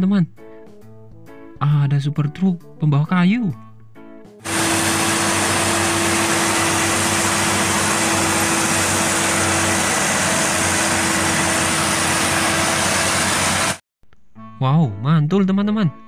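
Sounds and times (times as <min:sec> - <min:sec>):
truck diesel engine running: 0:04.4 - 0:13.8.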